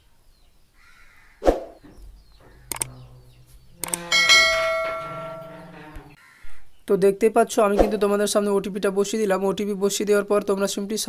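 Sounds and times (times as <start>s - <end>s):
mouse clicks: 2.7s - 2.9s
bell ringing: 2.7s - 6.2s.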